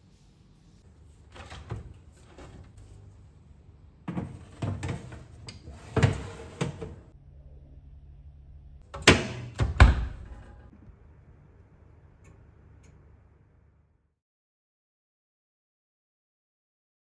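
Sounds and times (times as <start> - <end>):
oven door banging shut: 9.0 - 10.6.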